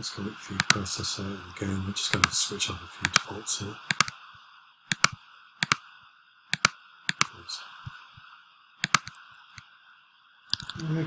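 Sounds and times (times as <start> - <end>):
faint steady hiss: 0.0 - 11.0
mouse double clicks: 0.6 - 0.9, 2.1 - 2.4, 3.9 - 4.2, 4.9 - 5.8, 6.6 - 7.4, 8.8 - 9.6.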